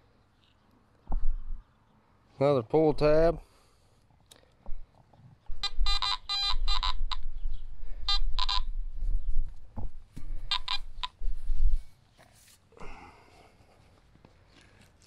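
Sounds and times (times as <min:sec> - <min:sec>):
metal detector beeping: 0:05.6 - 0:07.3, 0:08.0 - 0:08.8, 0:10.5 - 0:11.2.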